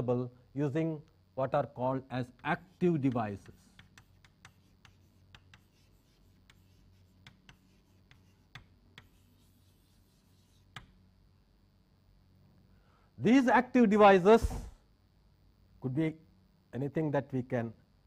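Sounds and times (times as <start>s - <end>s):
chalk scratching on blackboard: 2.3s - 11.0s.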